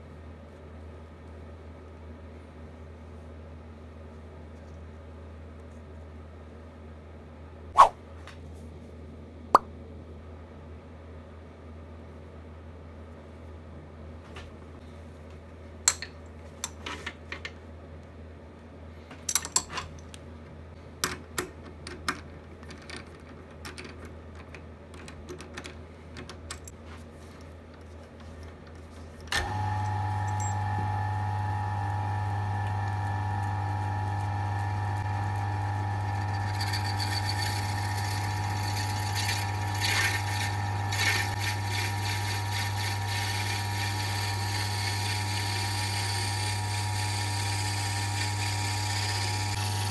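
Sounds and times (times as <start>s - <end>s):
lathe motor humming: 29.4s - 49.9s
drill bit boring into wood: 35.0s - 49.9s.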